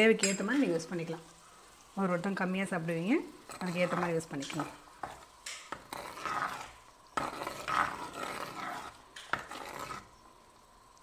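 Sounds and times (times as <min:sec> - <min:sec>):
ladle stirring thick curry: 0:03.2 - 0:10.4.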